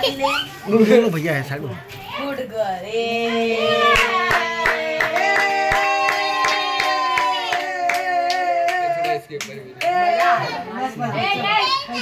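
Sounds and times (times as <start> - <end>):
hand-clapping: 4.0 - 10.4.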